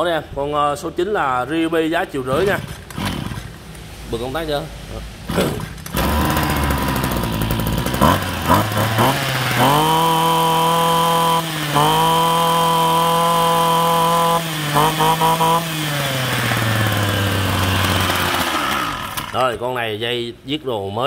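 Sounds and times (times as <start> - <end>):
brush cutter engine revving: 2.3 - 3.9, 5.3 - 19.6.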